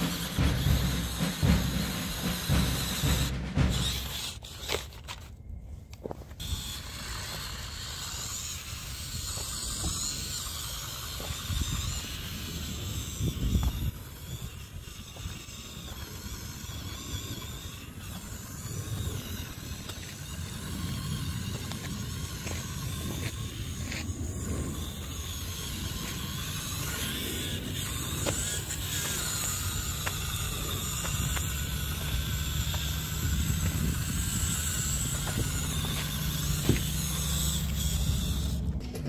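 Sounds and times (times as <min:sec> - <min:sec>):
electric drivetrain whining: 0:00.0 - 0:39.0.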